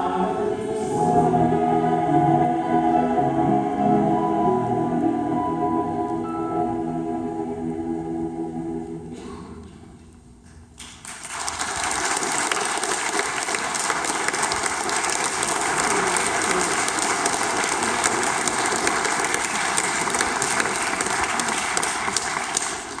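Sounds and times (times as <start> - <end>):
audience applause: 11.0 - 23.0.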